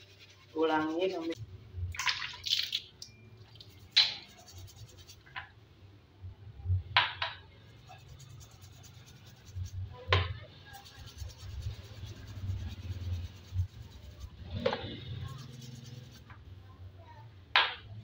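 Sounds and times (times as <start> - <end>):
brush scrubbing chain: 0.0 - 1.4, 3.6 - 5.3, 7.8 - 9.9, 10.6 - 16.3.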